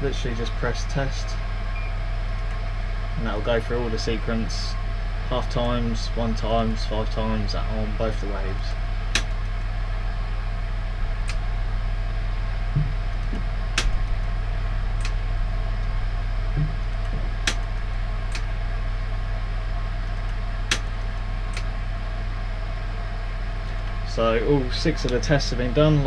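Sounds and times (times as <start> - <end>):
steady electrical hum: 0.0 - 26.0
circuit breaker clicking: 9.1 - 9.6, 11.2 - 11.5, 13.2 - 14.2, 15.0 - 15.2, 16.6 - 18.5, 20.2 - 21.7.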